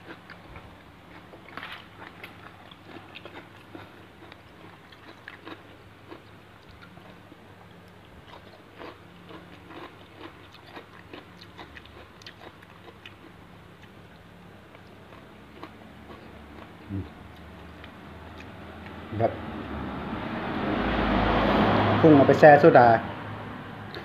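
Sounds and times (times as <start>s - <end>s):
person chewing: 0.0s - 19.0s
low steady hum: 0.0s - 21.3s.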